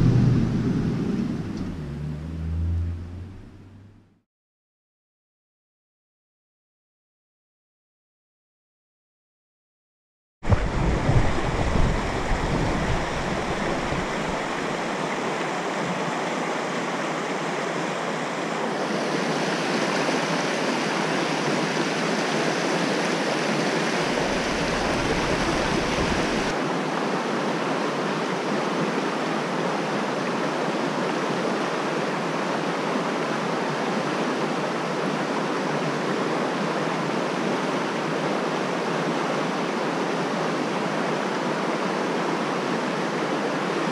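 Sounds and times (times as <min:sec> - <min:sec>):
low bumps: 0:00.0 - 0:04.2, 0:10.4 - 0:14.9, 0:24.2 - 0:26.5
stream rushing over rocks: 0:10.4 - 0:43.9.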